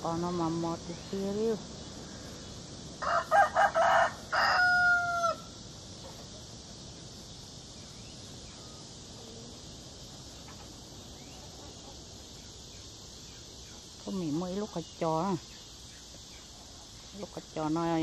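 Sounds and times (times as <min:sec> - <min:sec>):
insect chirring: 0:00.0 - 0:18.0
rooster crowing: 0:03.0 - 0:05.6.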